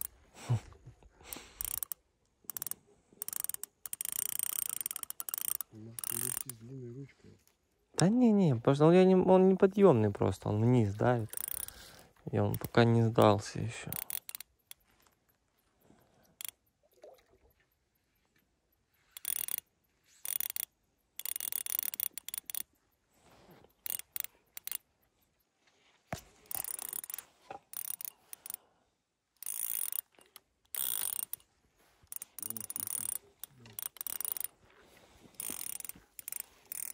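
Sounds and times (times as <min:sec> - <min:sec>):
fishing reel ratcheting: 0:00.0 - 0:00.2, 0:01.2 - 0:06.7, 0:09.6 - 0:17.2, 0:19.1 - 0:22.9, 0:23.5 - 0:24.9, 0:26.3 - 0:28.7, 0:29.4 - 0:36.9.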